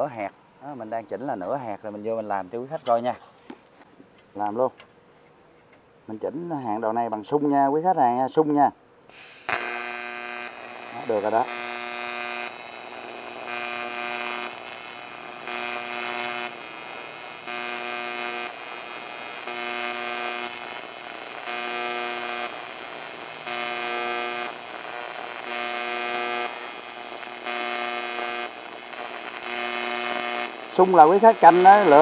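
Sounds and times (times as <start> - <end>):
welding arc buzzing: 9.1 - 32.0.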